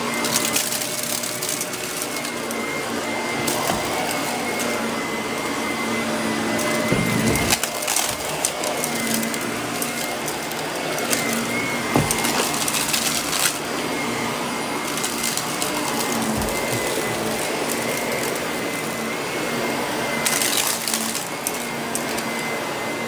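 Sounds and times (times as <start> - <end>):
debris rattling in vacuum: 0.0 - 23.0
vacuum cleaner motor hum: 0.0 - 23.0.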